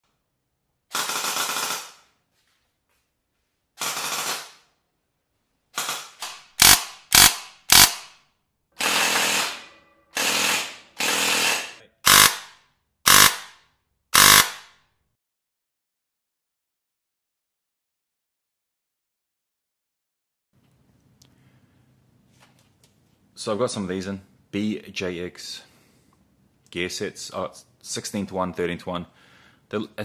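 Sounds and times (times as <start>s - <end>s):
rapid full-auto airsoft fire: 0.9s - 2.1s, 3.8s - 4.7s, 5.7s - 8.2s, 8.8s - 9.6s, 10.2s - 14.8s.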